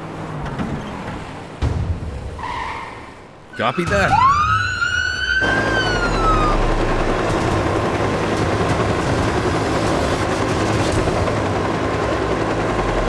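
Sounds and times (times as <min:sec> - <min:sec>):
police siren wailing: 0:03.5 - 0:08.6
helicopter whooshing: 0:03.7 - 0:13.0.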